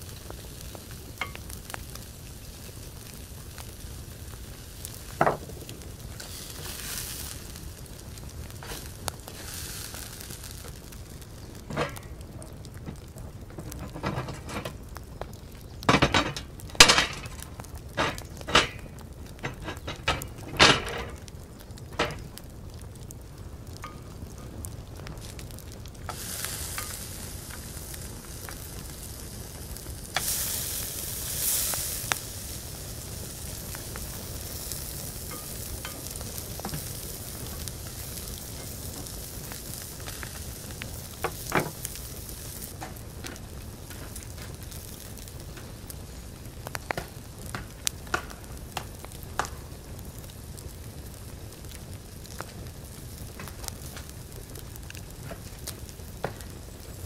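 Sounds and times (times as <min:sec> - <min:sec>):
meat sizzling in a pan: 0:00.0 - 0:12.4, 0:23.8 - 0:51.2
metal clanks of grill lid: 0:15.9 - 0:17.3, 0:19.5 - 0:21.2.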